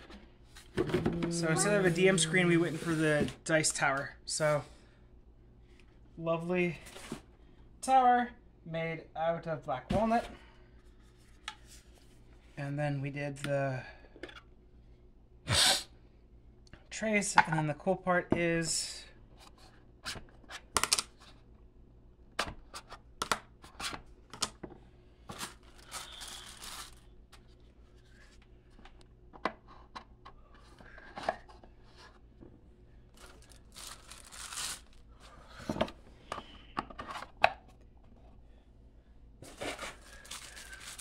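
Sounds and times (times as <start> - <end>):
packaging paper rustling: 25.3 - 27.5, 33.1 - 35.2, 39.4 - 41.0.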